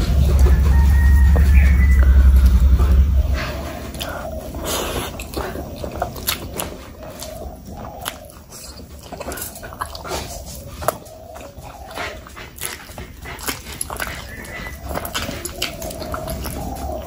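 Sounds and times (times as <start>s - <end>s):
thin wavering high hum: 0.0s - 11.9s
wet chewing: 0.0s - 17.0s
lip smacks: 3.9s - 17.0s.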